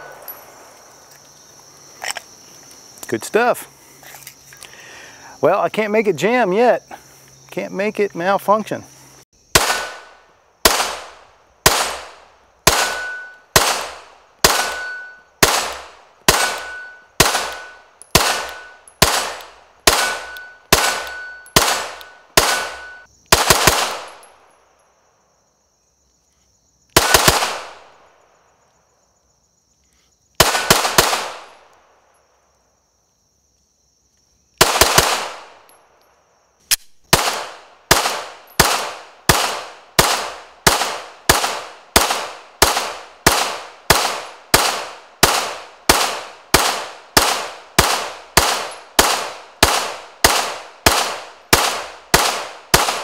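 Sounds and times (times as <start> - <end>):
insects buzzing: 0.0 - 53.0
pistol shots: 9.5 - 24.3, 27.0 - 28.0, 30.4 - 31.7, 34.6 - 35.7, 37.1 - 53.0.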